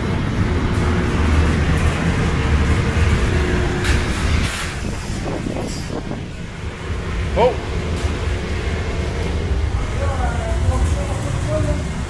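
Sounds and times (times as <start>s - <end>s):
heater burner and fan rumble: 0.0s - 12.0s.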